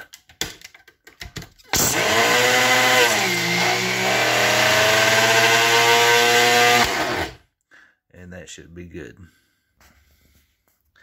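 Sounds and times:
blender motor grinding powder: 0:01.7 - 0:07.4.

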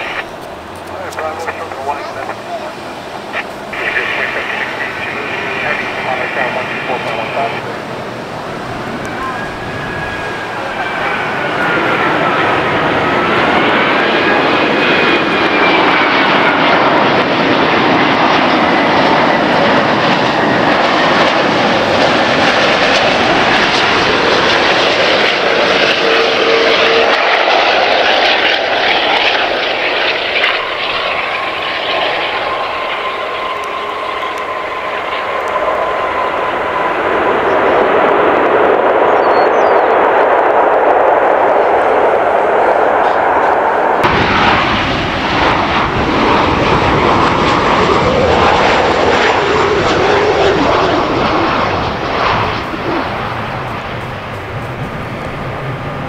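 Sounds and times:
jet airliner passing low: 0:00.0 - 0:56.0
whistling fan whine: 0:08.8 - 0:12.4, 0:39.0 - 0:40.0.

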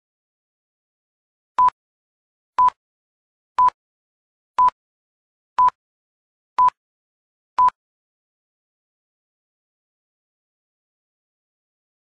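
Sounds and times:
short countdown beeps: 0:02.6 - 0:02.8, 0:05.6 - 0:05.8, 0:06.6 - 0:06.8, 0:07.6 - 0:07.8.

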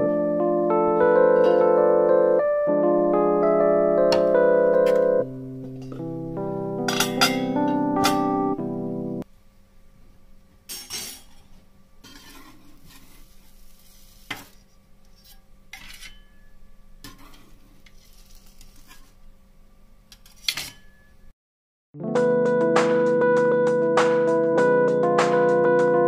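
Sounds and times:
metal clinking and scraping on moulds: 0:10.8 - 0:13.3, 0:14.3 - 0:19.2
faint batter sizzle: 0:12.2 - 0:14.8, 0:17.1 - 0:19.3.

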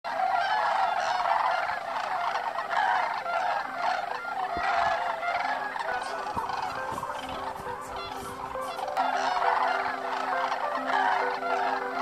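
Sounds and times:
flock of cranes calling: 0:00.1 - 0:12.0.

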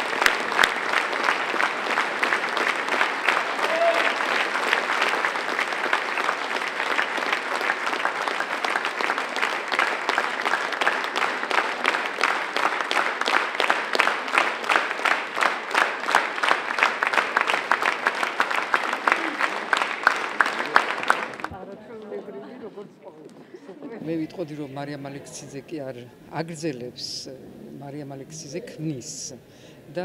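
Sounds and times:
rhythmic unison clapping: 0:00.0 - 0:21.5
audience applauding: 0:00.0 - 0:21.6.

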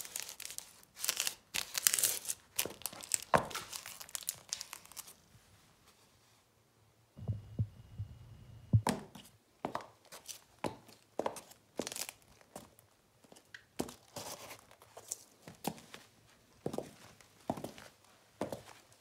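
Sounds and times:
low rumble with knocks: 0:07.2 - 0:09.0.

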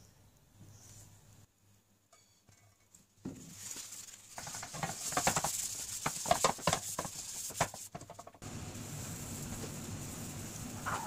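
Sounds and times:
paper towel scrubbing a pan: 0:03.4 - 0:08.4.

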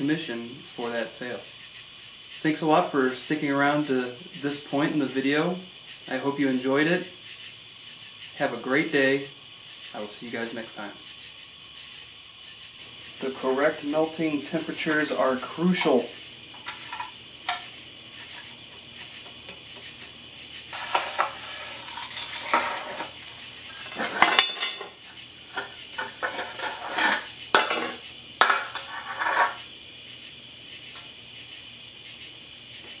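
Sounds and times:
metal rod scraping residue: 0:14.6 - 0:18.8, 0:19.9 - 0:29.7
metal tin clinks and knocks: 0:15.8 - 0:18.6, 0:20.7 - 0:29.6.

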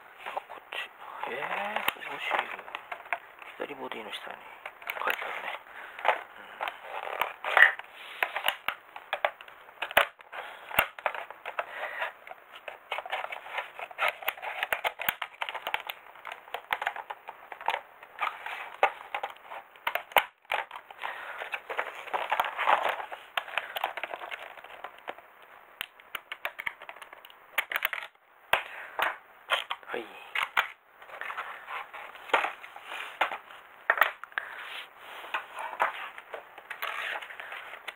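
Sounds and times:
plastic packaging crinkling: 0:01.2 - 0:25.4.

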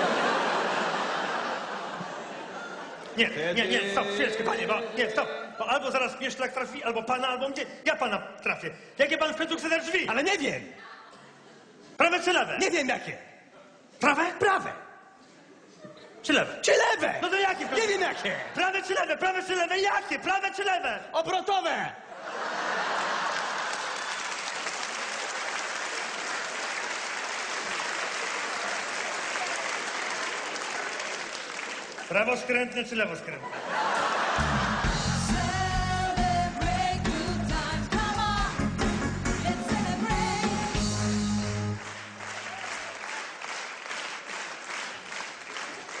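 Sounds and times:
audience applauding: 0:22.8 - 0:32.4, 0:41.5 - 0:46.0.

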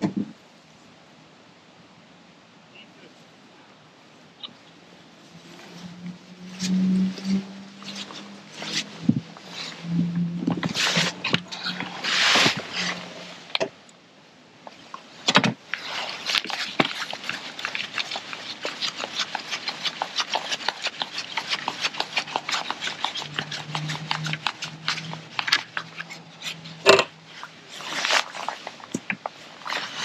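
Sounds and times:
small clicks and scrapes: 0:15.7 - 0:30.0.

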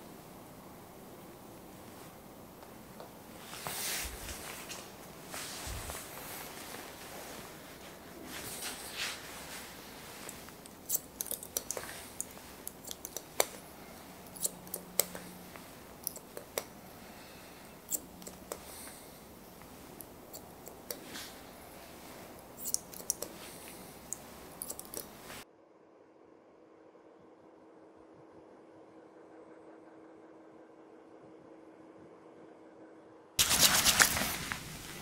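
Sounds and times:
scissors snipping hair: 0:08.3 - 0:25.4.

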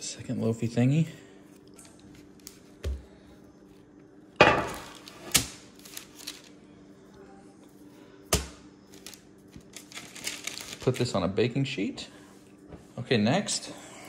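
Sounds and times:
baking sheet thump: 0:04.4 - 0:05.0
baking sheet clattering: 0:04.4 - 0:05.5
paper rustling: 0:04.8 - 0:06.5, 0:08.9 - 0:11.2.

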